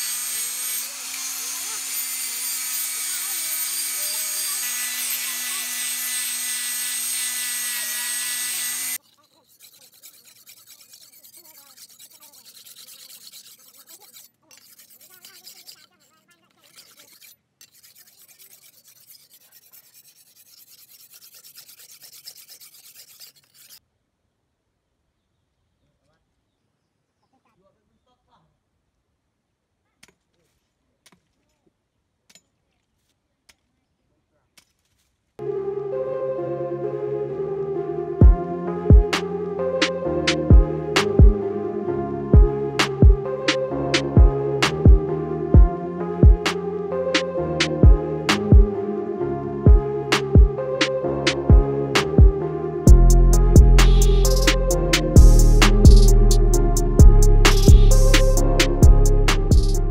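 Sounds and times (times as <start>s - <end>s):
angle grinder on steel: 0.0s - 23.8s, 53.8s - 56.6s
blade scraping on sharpening stone: 0.2s - 23.8s, 53.8s - 56.6s, 57.4s - 59.8s.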